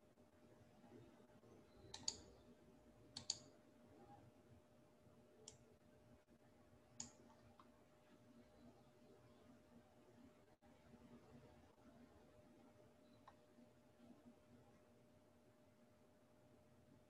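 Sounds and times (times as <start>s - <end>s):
faint steady hum: 0.0s - 17.0s
faint sharp clicks: 1.9s - 2.3s, 3.1s - 3.5s, 7.0s - 7.8s, 13.2s - 13.5s.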